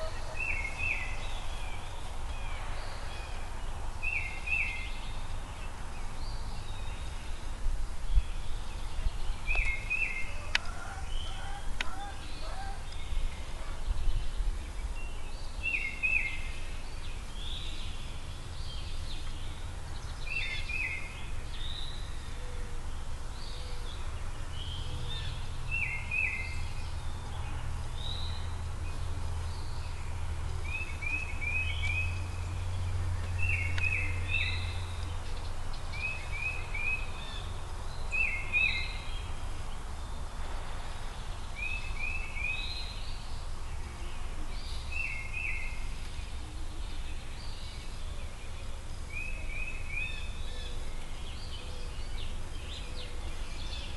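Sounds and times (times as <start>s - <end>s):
birds calling: 0.0s - 53.9s
steady low rumble: 16.4s - 49.2s.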